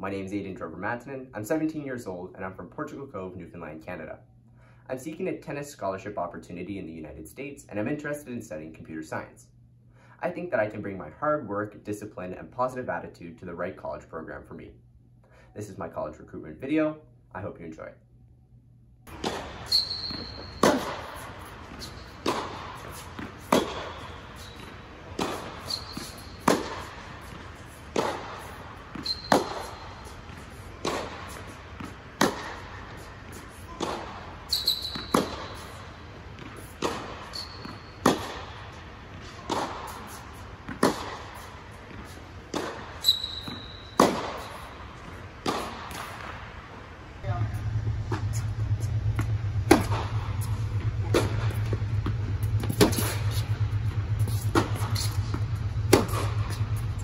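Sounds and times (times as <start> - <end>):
sneaker squeaks on court: 19.1 - 38.8, 39.4 - 44.9
tennis ball struck by rackets: 19.1 - 46.5, 47.6 - 57.0.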